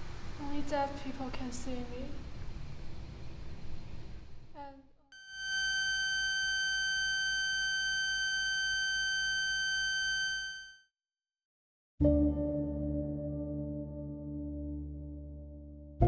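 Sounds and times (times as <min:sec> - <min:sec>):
high ringing tone: 0:05.2 - 0:10.8.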